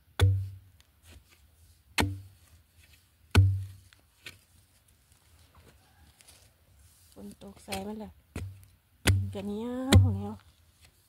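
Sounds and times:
metal blade stabbing into soil: 7.6 - 10.2.

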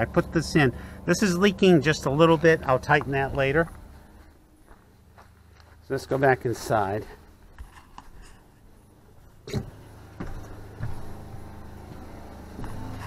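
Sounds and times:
water pump humming: 0.0 - 4.8, 8.7 - 13.0
light footsteps: 2.1 - 13.0.

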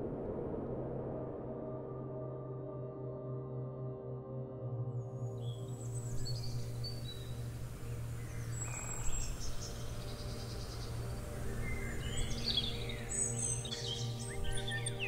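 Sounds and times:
ambient music drone: 0.6 - 15.0
songbirds chirping: 5.1 - 15.0.

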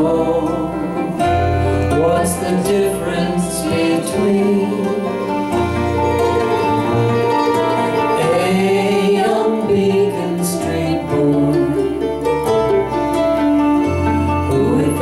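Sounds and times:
acoustic guitar: 0.0 - 15.0
bass: 0.0 - 15.0
keyboard: 0.0 - 15.0
mandolin: 0.0 - 15.0.

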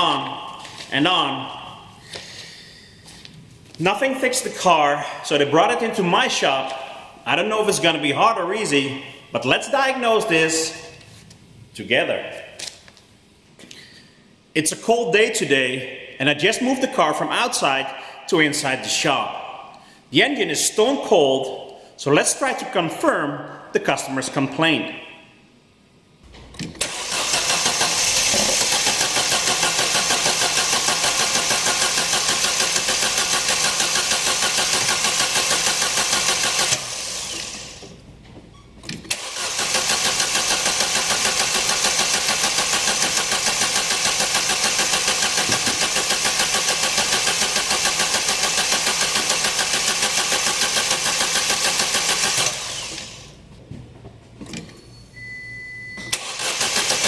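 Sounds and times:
car engine cranking on starter: 26.8 - 37.8, 39.1 - 53.2, 56.1 - 57.0.

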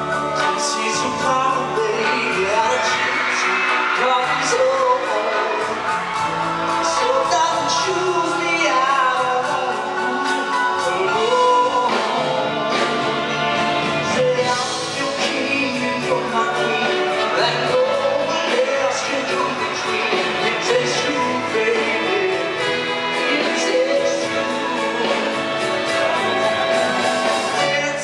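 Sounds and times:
band playing: 0.0 - 28.0
man singing show tune: 0.0 - 28.0.

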